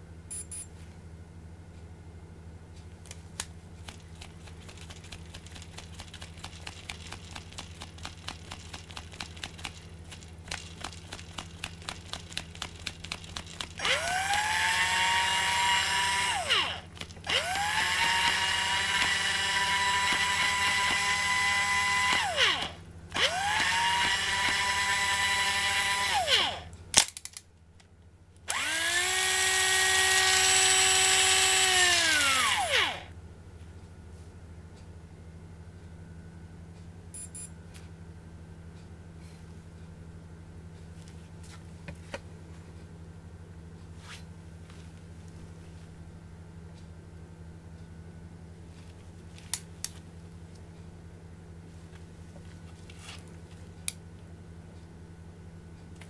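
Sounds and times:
reel motor whining: 0:13.8 - 0:26.6, 0:28.5 - 0:33.1.

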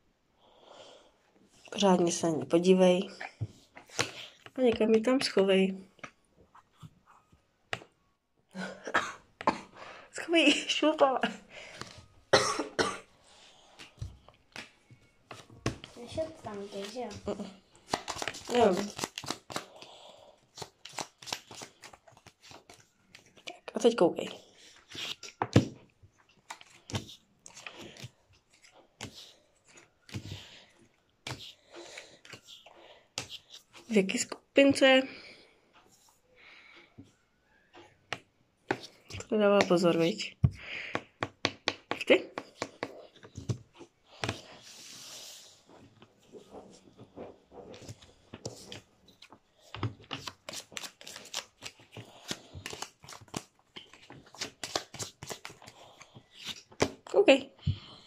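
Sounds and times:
playing cards snapping and slapping: 0:17.8 - 0:19.8, 0:20.5 - 0:23.3, 0:49.9 - 0:55.7.

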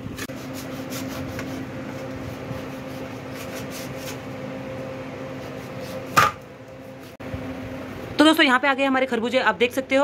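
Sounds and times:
steady hum: 0:00.0 - 0:10.0
knife slicing watermelon: 0:00.2 - 0:04.2, 0:05.3 - 0:07.2.

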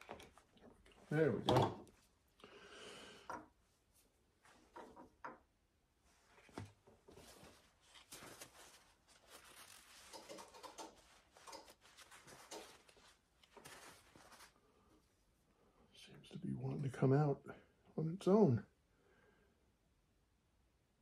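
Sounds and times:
paper towel rustling: 0:06.0 - 0:14.9.

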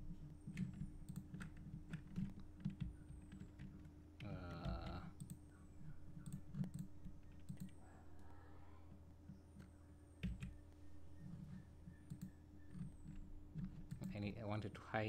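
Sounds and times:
steady low hum: 0:00.0 - 0:15.0
computer keyboard keystrokes: 0:00.4 - 0:05.4, 0:06.2 - 0:07.8, 0:09.6 - 0:10.6, 0:11.3 - 0:14.3.

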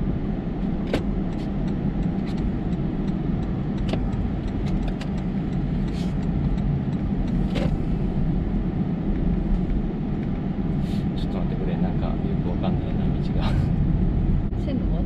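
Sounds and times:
car engine and road rumble: 0:00.0 - 0:15.0.

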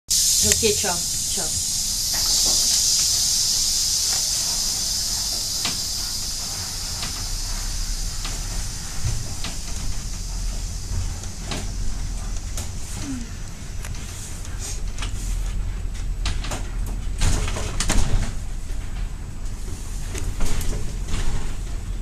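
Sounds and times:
high hiss: 0:00.1 - 0:15.8
funicular car rumbling: 0:00.1 - 0:22.0.

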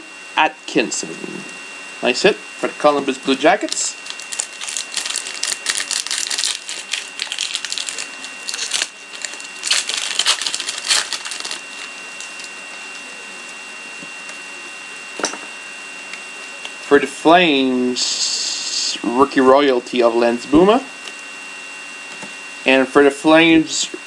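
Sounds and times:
wrapper crinkling and tearing: 0:03.6 - 0:12.6.

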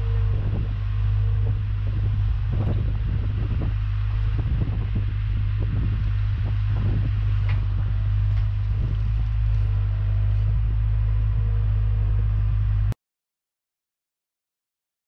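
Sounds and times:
skid steer diesel engine running: 0:00.0 - 0:13.0.

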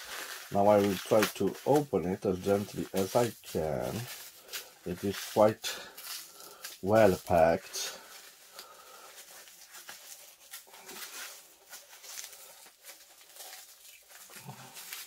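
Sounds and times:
packing wrap crinkling: 0:00.0 - 0:15.0.

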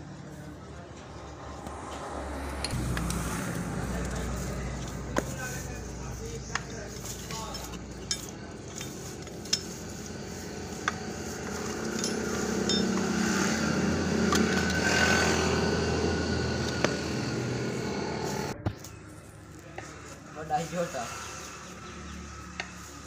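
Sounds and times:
steady background noise: 0:00.0 - 0:23.0
metal parts clinking: 0:06.9 - 0:09.8, 0:11.5 - 0:13.1.

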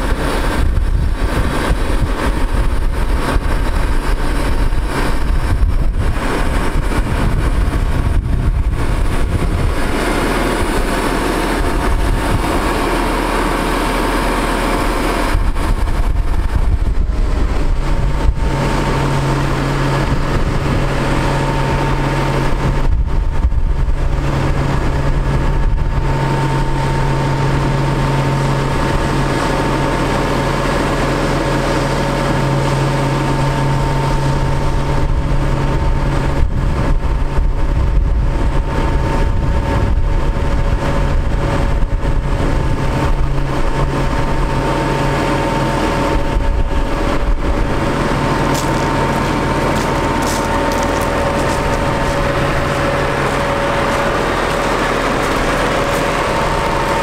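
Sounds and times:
diesel engine running: 0:00.0 - 0:57.0
hydraulic hoist hum and whine: 0:00.0 - 0:57.0.

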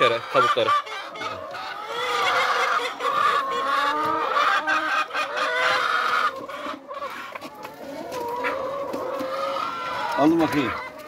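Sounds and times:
hens clucking and squawking: 0:00.0 - 0:11.0.

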